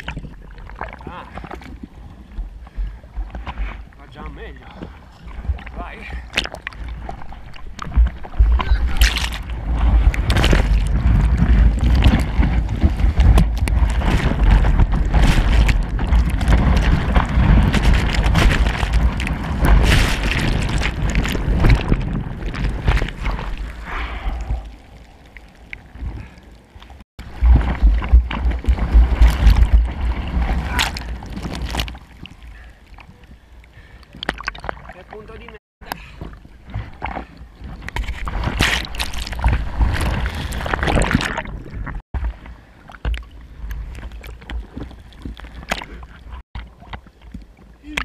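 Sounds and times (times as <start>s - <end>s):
surf water churning and rushing: 0.0s - 48.0s.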